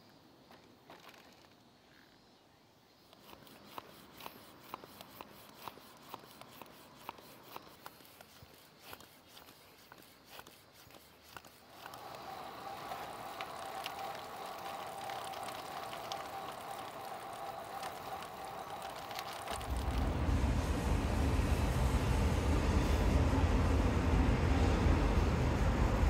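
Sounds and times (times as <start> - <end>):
faint clicks: 3.1 - 20.1
bike tyres rolling whir: 3.2 - 26.0
loud low rumble: 19.6 - 26.0.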